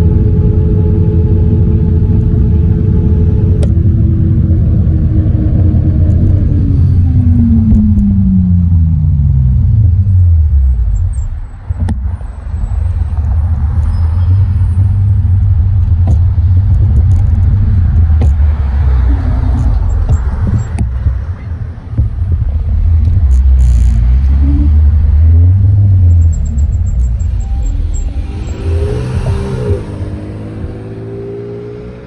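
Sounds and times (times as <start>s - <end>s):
wind rumble on microphone: 0.0s - 32.0s.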